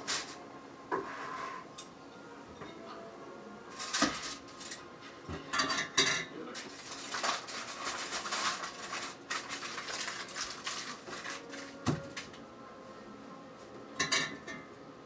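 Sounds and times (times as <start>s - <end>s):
dishes and utensils clattering: 3.7s - 12.4s, 14.0s - 14.8s.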